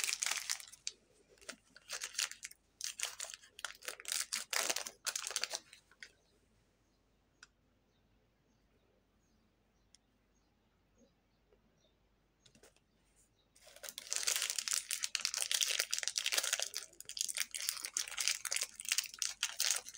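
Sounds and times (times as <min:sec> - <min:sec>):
plastic wrapper crinkling and tearing: 0:00.0 - 0:06.0, 0:13.6 - 0:19.9.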